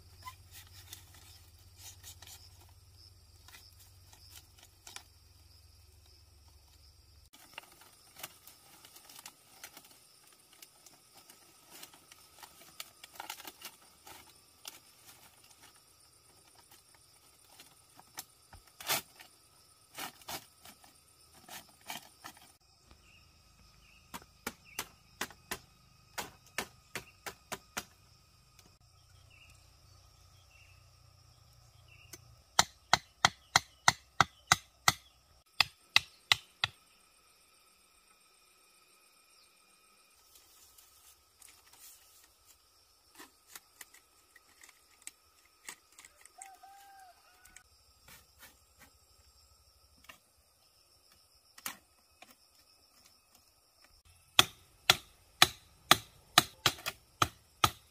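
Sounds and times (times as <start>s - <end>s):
bamboo knocking: 24.1s - 28.0s, 32.1s - 36.8s, 54.4s - 57.8s
sharp blows on bamboo: 24.1s - 28.0s, 32.6s - 36.8s, 54.3s - 57.9s.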